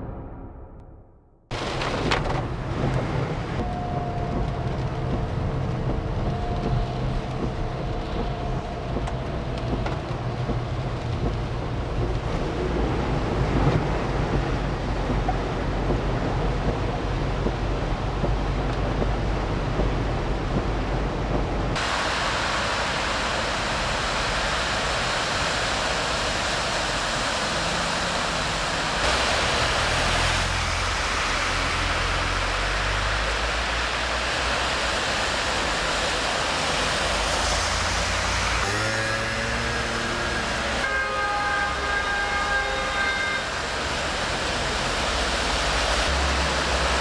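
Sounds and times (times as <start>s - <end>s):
low rumbling inside car: 0.0s - 25.6s
rushing splashing floodwater: 1.5s - 47.0s.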